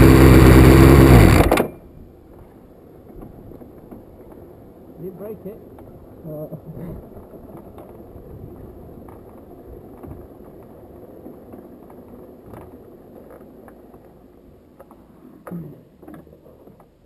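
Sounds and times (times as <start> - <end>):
muffled race car rumble: 0.0 - 1.6.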